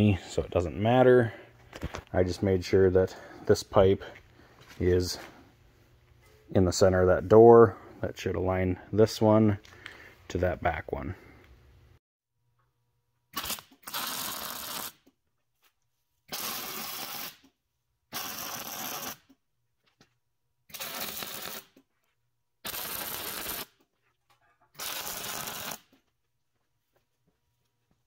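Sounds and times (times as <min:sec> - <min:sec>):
electric arc welding: 0:13.4 - 0:15.1, 0:16.3 - 0:17.4, 0:18.1 - 0:19.3, 0:20.7 - 0:21.8, 0:22.6 - 0:23.8, 0:24.8 - 0:25.9.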